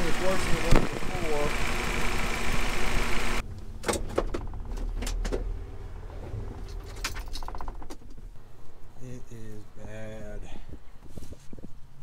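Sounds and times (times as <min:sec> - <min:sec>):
fast ticking: 0:00.0 - 0:03.4
car engine idling: 0:00.0 - 0:08.8.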